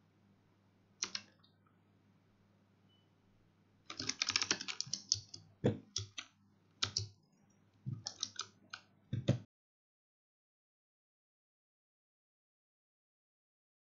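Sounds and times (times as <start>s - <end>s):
keyboard key presses: 1.0s - 1.3s, 3.9s - 7.1s, 7.9s - 9.5s.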